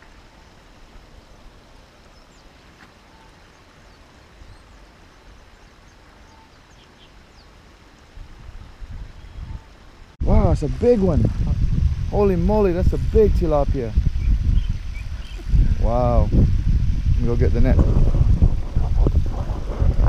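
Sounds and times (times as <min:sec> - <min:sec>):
low rumble and hiss: 0:00.0 - 0:20.0
faint bird chirps: 0:02.0 - 0:08.1, 0:09.1 - 0:09.8, 0:14.2 - 0:15.6.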